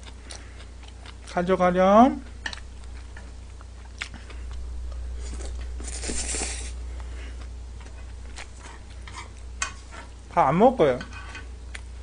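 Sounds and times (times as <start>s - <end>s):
noodles slurped: 5.2s - 6.8s.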